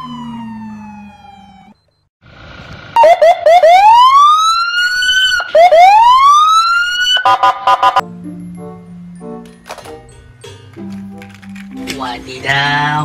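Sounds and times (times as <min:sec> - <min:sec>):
police siren yelps and wail: 0:00.0 - 0:01.8, 0:03.0 - 0:08.0.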